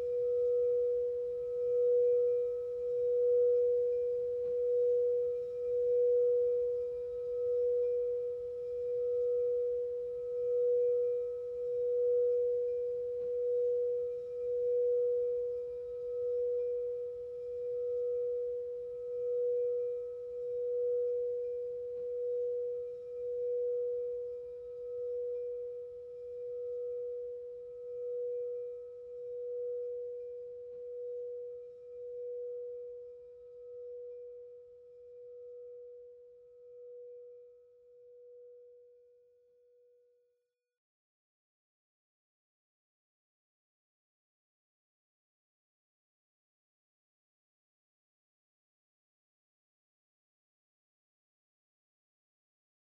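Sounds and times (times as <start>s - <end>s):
singing bowl ringing: 0.0s - 39.0s.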